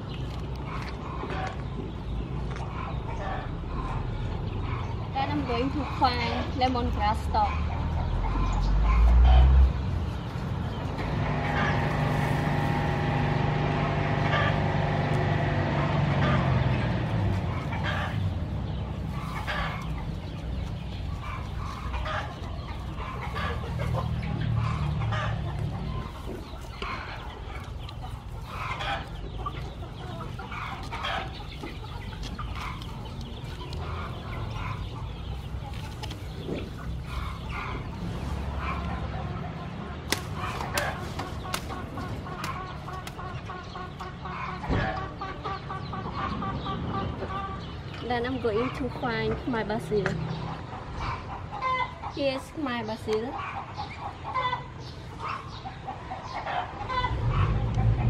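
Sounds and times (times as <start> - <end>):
chickens clucking: 0.0 - 58.0
stalks rustling and snapping: 40.0 - 43.2.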